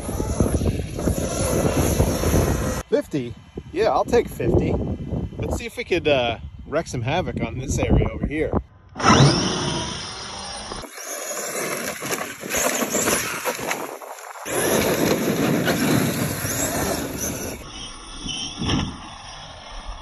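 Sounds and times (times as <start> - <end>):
electric rc truck motor: 0.0 - 2.9, 8.9 - 20.0
tyres throwing up dirt: 9.0 - 17.7.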